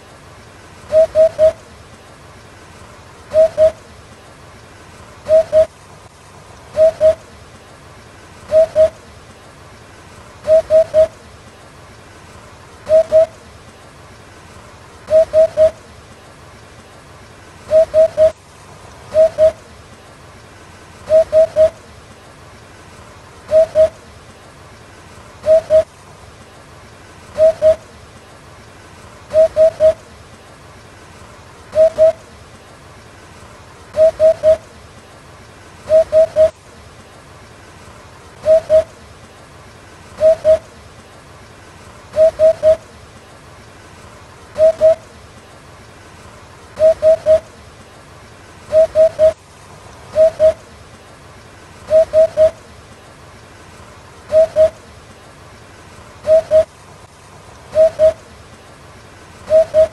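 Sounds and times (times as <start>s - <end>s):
faint steady hiss: 0.0s - 59.9s
bird hooting call: 0.9s - 1.7s, 3.3s - 3.8s, 5.2s - 5.7s, 6.8s - 7.2s, 8.5s - 9.0s, 10.4s - 11.2s, 12.8s - 13.4s, 15.1s - 15.8s, 17.7s - 18.4s, 19.1s - 19.7s, 21.1s - 21.8s, 23.5s - 24.0s, 25.4s - 25.9s, 27.4s - 27.9s, 29.3s - 30.0s, 31.7s - 32.2s, 33.9s - 34.7s, 35.9s - 36.6s, 38.4s - 39.0s, 40.2s - 40.7s, 42.1s - 42.9s, 44.6s - 45.1s, 46.8s - 47.6s, 48.7s - 49.4s, 50.1s - 50.7s, 51.9s - 52.6s, 54.3s - 54.8s, 56.2s - 56.7s, 57.7s - 58.3s, 59.5s - 59.9s.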